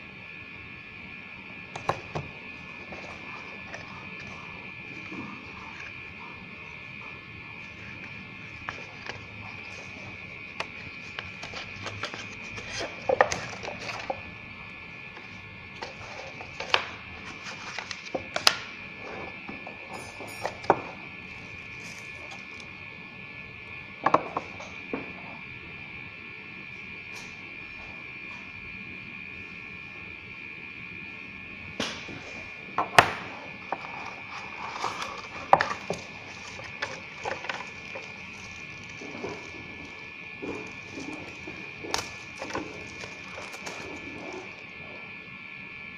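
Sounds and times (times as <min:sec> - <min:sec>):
steady high-pitched whine: 0:00.0 - 0:45.9
cardboard and paper handled: 0:01.7 - 0:14.4, 0:15.1 - 0:19.2, 0:33.1 - 0:44.6
plastic packet rustling: 0:33.6 - 0:44.7.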